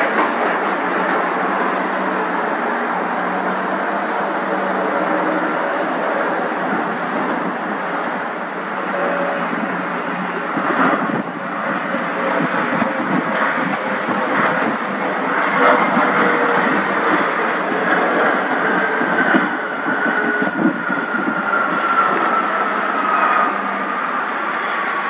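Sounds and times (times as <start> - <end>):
jet engines rushing: 0.0 - 25.0.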